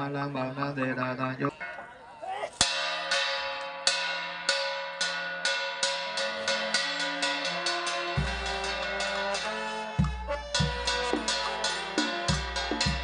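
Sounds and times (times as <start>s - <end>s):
low sustained brass note: 6.2s - 13.0s.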